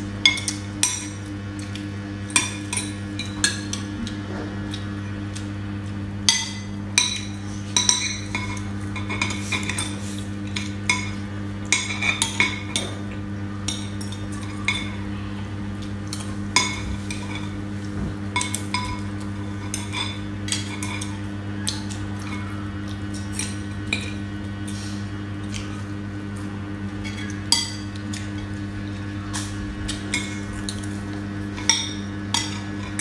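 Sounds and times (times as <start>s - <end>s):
low steady hum: 0.0s - 33.0s
cutlery clinking on plates: 31.5s - 33.0s.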